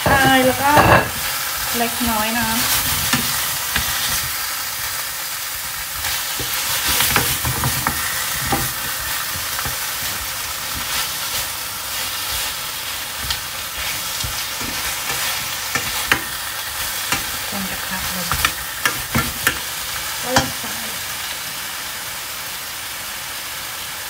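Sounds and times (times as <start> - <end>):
spatula scraping and clinking on pan: 0.0 - 1.4, 6.0 - 11.5, 13.2 - 19.6
food sizzling in a metal pan: 0.0 - 24.0.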